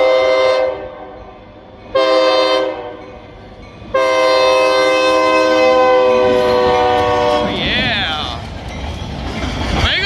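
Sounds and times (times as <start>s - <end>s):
locomotive air horn blasts: 0.0s - 1.2s, 1.9s - 3.0s, 3.9s - 7.6s
train running noise: 0.0s - 10.0s.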